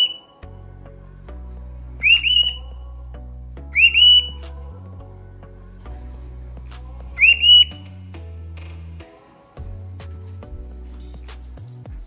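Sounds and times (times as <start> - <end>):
cockatiel whistling: 0.0 - 0.3, 2.0 - 2.8, 3.7 - 4.4, 7.2 - 7.8
soft background music: 0.0 - 12.0.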